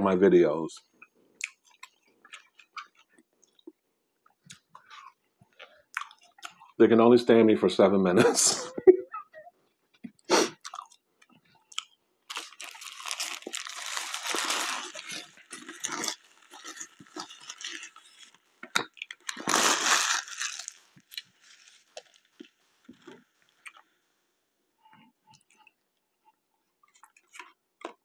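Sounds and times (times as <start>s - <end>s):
chewing sounds: 1.0s - 6.8s, 9.9s - 23.9s
paper wrapper crinkling: 12.3s - 18.4s, 19.1s - 22.5s.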